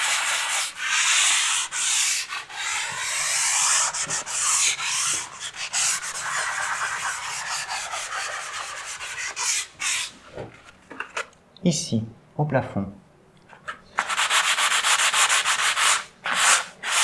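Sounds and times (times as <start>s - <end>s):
hand sanding a wall: 0.0s - 10.2s, 14.0s - 17.0s.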